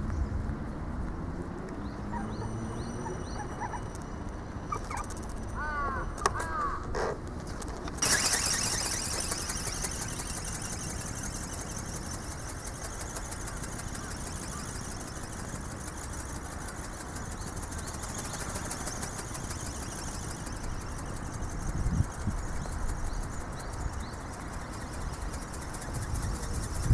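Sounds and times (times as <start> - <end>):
low wind rumble on microphone: 20.6 - 26.9.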